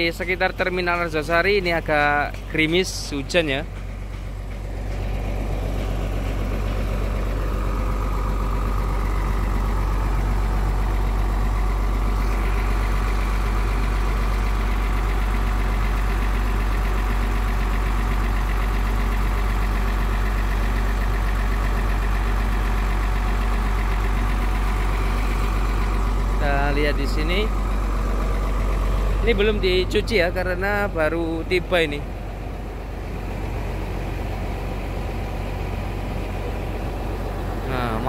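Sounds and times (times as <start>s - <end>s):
diesel bus engine idling: 0.0s - 38.0s.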